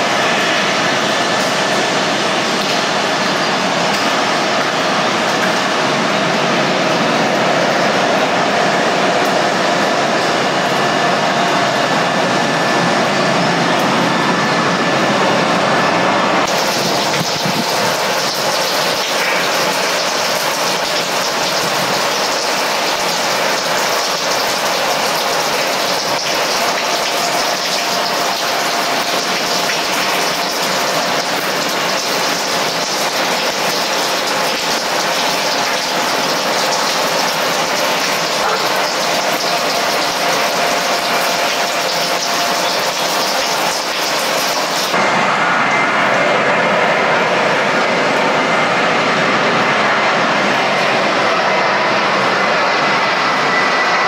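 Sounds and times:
jet engines rushing hiss: 0.0s - 54.0s.

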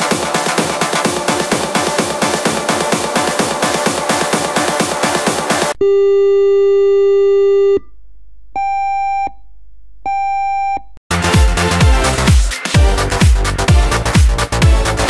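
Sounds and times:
electronic dance music: 0.0s - 5.8s, 11.1s - 15.0s
alarm tone and beeps: 5.8s - 7.9s, 8.6s - 9.5s.

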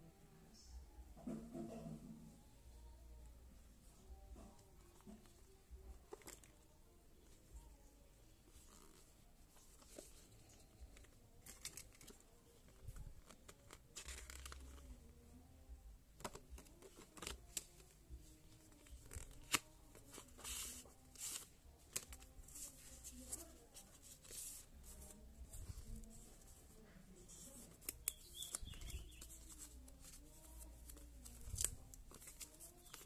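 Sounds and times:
paper and plastic packaging rustling: 8.5s - 15.0s, 16.2s - 33.0s.

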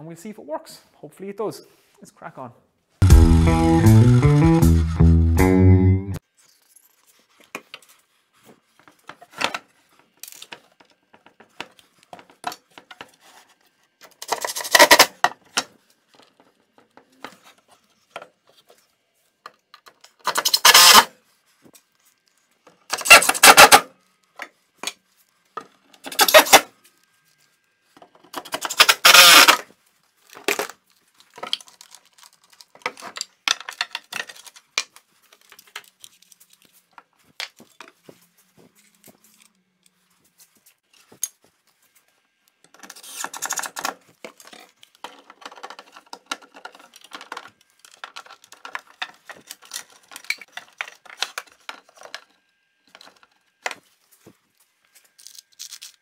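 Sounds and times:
tools clicking and clattering: 28.0s - 29.6s, 30.3s - 38.0s, 38.8s - 40.0s, 42.7s - 52.3s
cordless drill driving screws: 28.7s - 29.6s.

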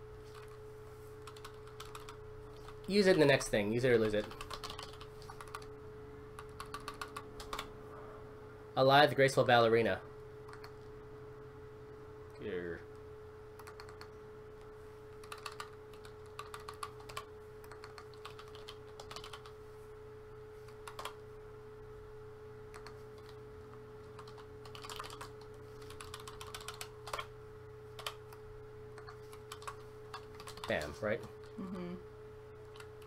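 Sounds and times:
faint steady hum: 0.0s - 33.0s
typing on computer keyboard: 1.2s - 2.9s, 4.2s - 5.7s, 6.4s - 7.7s, 10.5s - 10.8s, 13.6s - 14.1s, 15.2s - 19.6s, 20.8s - 21.2s, 22.7s - 23.4s, 24.1s - 27.3s, 28.0s - 28.4s, 29.0s - 31.0s.

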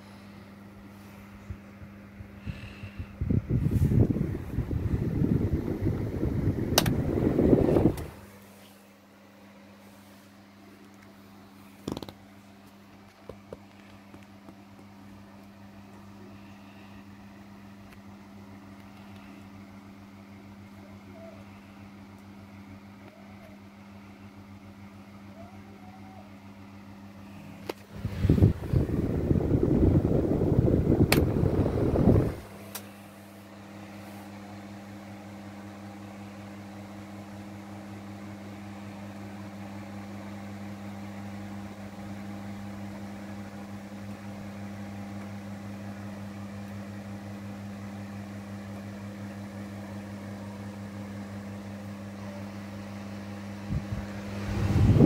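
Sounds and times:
table fan motor hum: 0.0s - 8.8s, 9.7s - 55.0s
low rushing air noise: 1.5s - 8.4s, 27.8s - 32.6s, 53.7s - 55.0s.

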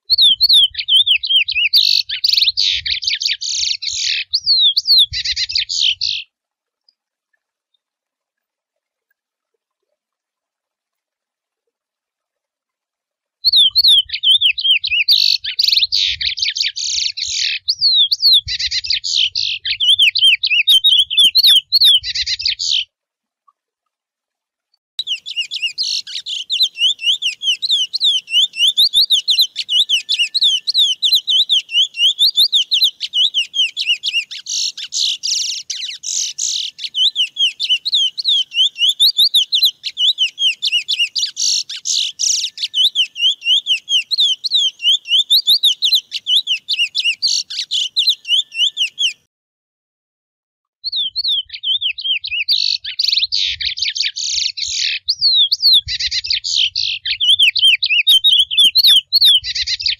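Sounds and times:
finch singing warbling whistles: 0.0s - 6.3s, 13.4s - 22.8s, 25.0s - 49.3s, 50.8s - 59.9s.

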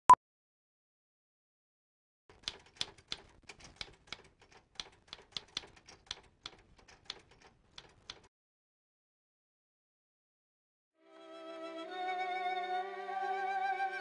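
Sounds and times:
keys clicking while typing: 2.3s - 8.3s.

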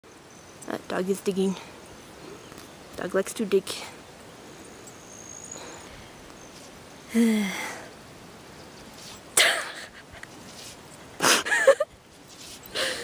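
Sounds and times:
person sneezing: 9.4s - 9.9s.

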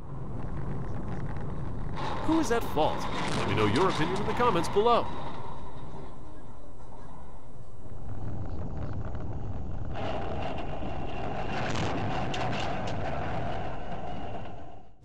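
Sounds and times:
road and wind noise: 0.0s - 6.7s.

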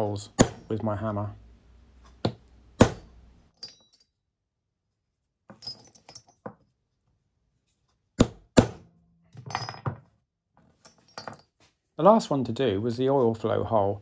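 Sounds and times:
hammer striking steel punch: 0.3s - 0.7s, 2.2s - 3.2s, 8.2s - 9.0s.

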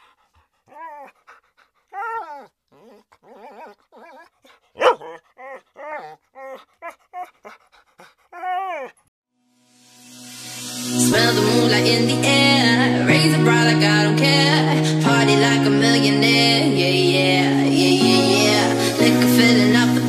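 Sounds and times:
dog whining and yipping: 0.6s - 9.1s.

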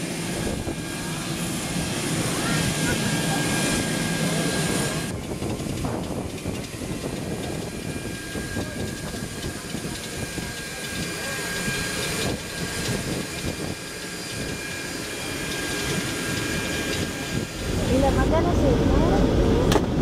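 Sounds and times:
high turbine whine: 0.0s - 20.0s
wind buffeting microphone: 0.1s - 20.0s.

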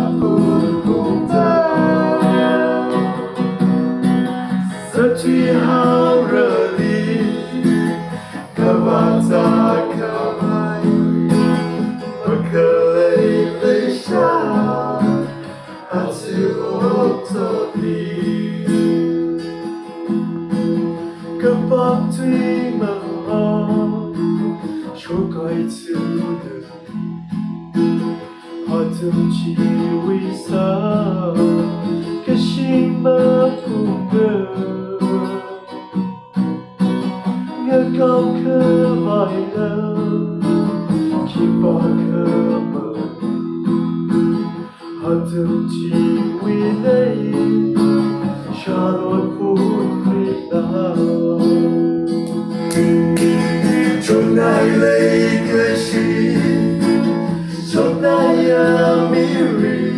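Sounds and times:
man singing: 0.0s - 3.6s, 4.6s - 19.0s, 21.4s - 24.1s, 24.9s - 26.8s, 28.6s - 31.6s, 32.2s - 35.7s, 37.6s - 40.4s, 41.1s - 43.2s, 45.0s - 47.8s, 48.4s - 51.8s, 53.6s - 59.9s
acoustic guitar strumming: 0.0s - 59.9s.

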